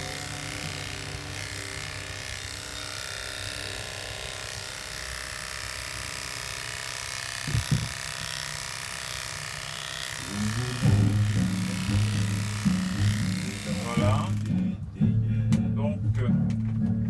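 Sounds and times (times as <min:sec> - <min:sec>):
electric clipper humming: 0:00.0 - 0:14.8
short low thumps: 0:07.5 - 0:08.0.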